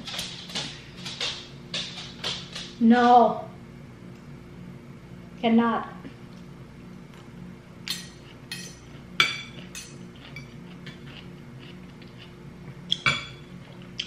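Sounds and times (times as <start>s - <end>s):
cutlery clinking on plate: 7.9s - 11.0s.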